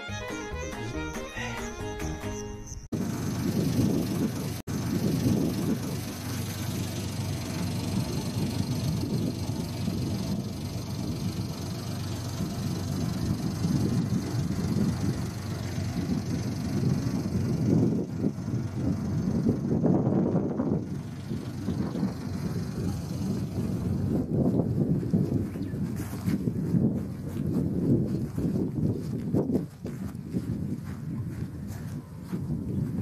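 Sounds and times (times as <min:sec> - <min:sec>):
music: 0:00.0 - 0:02.9
wind rumbling on microphone: 0:03.0 - 0:33.0.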